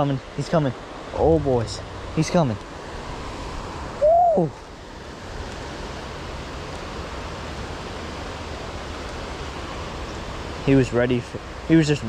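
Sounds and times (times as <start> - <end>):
creek water flowing: 0.0 - 12.0
person exclaiming: 4.0 - 4.6.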